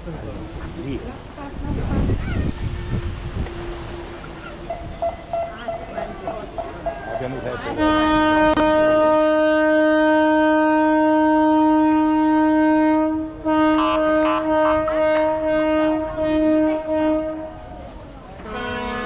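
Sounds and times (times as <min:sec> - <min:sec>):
boat horn blasts: 0:01.5 - 0:19.0
higher horn tooting: 0:01.6 - 0:19.0.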